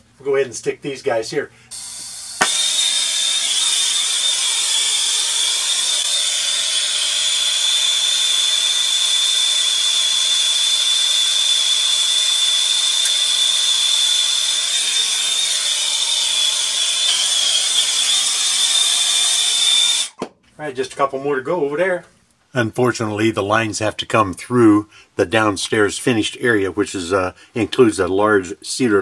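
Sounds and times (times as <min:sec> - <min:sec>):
torch hissing and whistling: 0:01.7 - 0:20.2.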